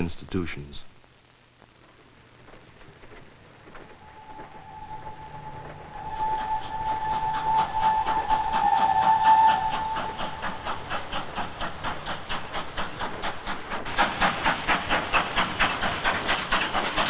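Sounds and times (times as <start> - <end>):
steam locomotive chuffing: 3.1 - 17.0
steam locomotive whistle: 4.0 - 11.4.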